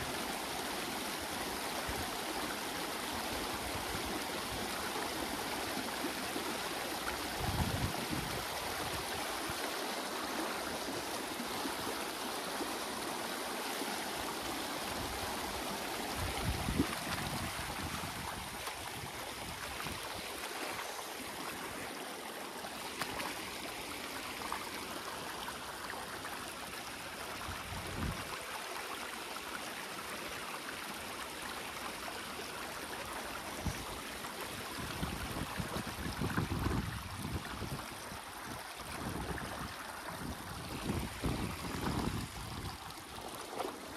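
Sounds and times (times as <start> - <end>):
creek water rushing over rocks: 0.0 - 43.9.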